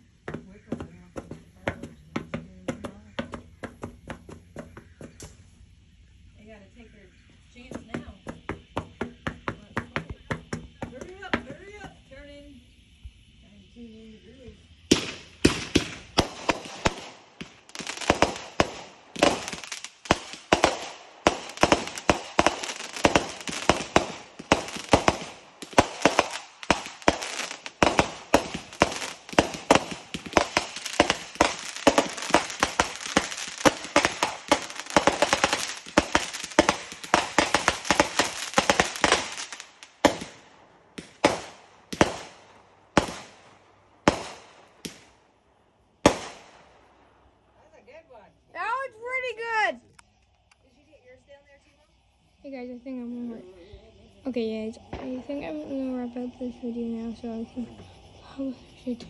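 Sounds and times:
fireworks bangs: 13.7s - 49.8s, 52.4s - 59.0s.

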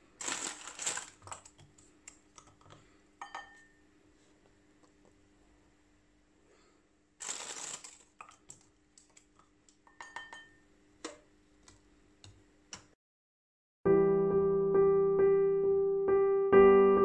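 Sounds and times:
electric piano music: 13.9s - 17.0s.

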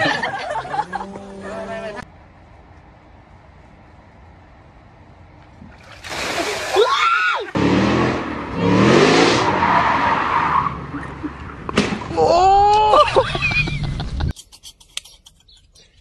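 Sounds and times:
car engine revving: 7.6s - 11.0s
spinning tyre squealing: 9.2s - 11.3s.

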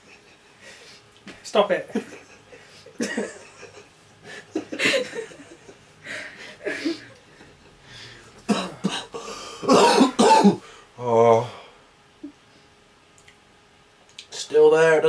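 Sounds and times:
men giggling: 1.9s - 9.3s
men coughing: 2.1s - 7.2s, 8.4s - 10.7s.

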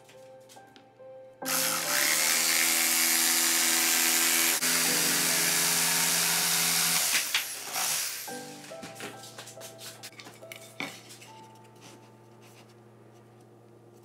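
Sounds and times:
jigsaw sawing through board: 1.5s - 8.3s.

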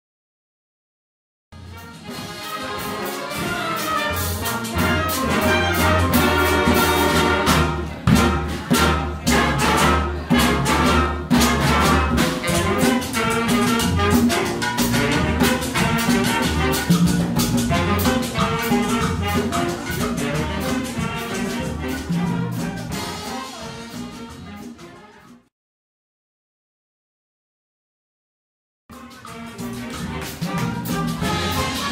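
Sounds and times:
drum kit: 1.6s - 25.4s, 28.9s - 31.9s
congas: 1.6s - 25.5s, 28.9s - 31.9s
saxophones and brass: 1.6s - 25.5s, 28.9s - 31.9s
bass line: 3.4s - 23.9s.

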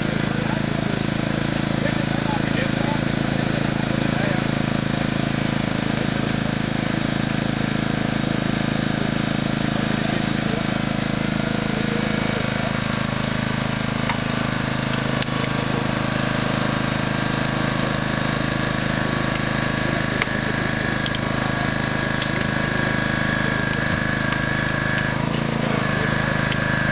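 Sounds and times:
high steady whine: 0.0s - 26.9s
hydraulic power unit running: 0.0s - 26.9s
sharp cracks: 10.1s - 26.9s.

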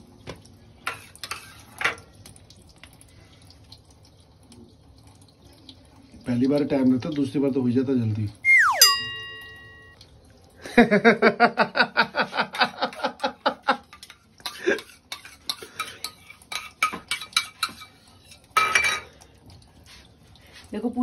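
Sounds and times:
metal spoon clinking in steel bowl: 8.8s - 10.0s
spoon scraping bowl: 14.0s - 18.4s.

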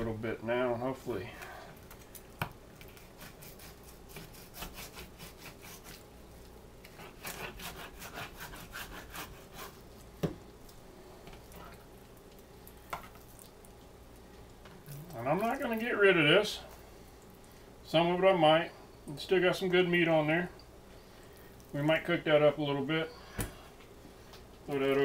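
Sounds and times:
knife sawing through cartilage: 2.9s - 6.0s, 6.9s - 9.8s.

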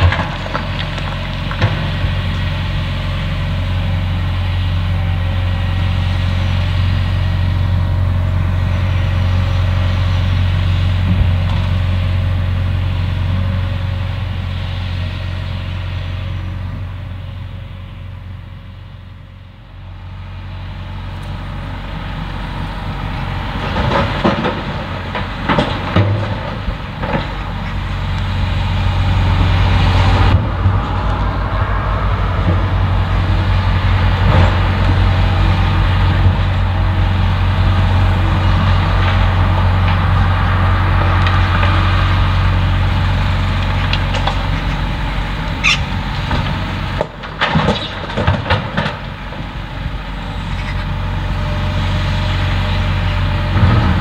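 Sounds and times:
soil and rocks dropping into truck bed: 0.0s - 2.2s
excavator diesel engine running: 0.0s - 54.0s.

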